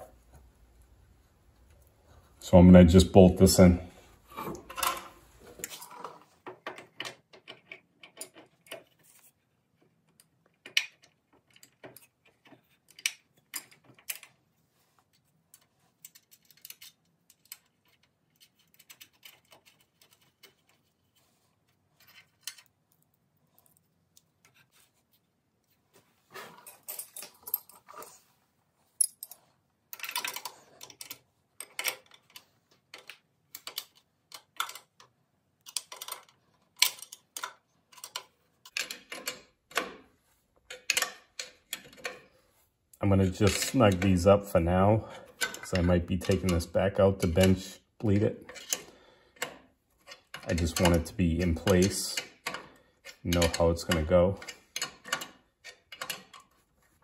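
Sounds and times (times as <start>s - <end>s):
wrench and bolts clinking on metal: 26.6s - 28.2s, 29.0s - 40.0s, 40.7s - 42.3s, 43.4s - 44.2s, 45.4s - 56.6s.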